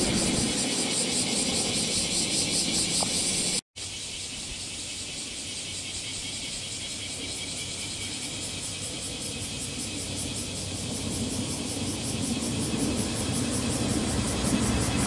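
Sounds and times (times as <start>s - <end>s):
cicadas droning: 0.0s - 15.0s
low outdoor rumble: 8.4s - 15.0s.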